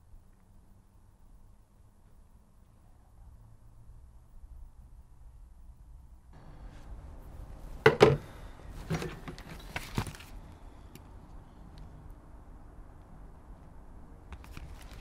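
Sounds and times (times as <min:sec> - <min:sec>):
sketchbook pages rustling: 0:08.8 - 0:10.6, 0:14.3 - 0:15.0.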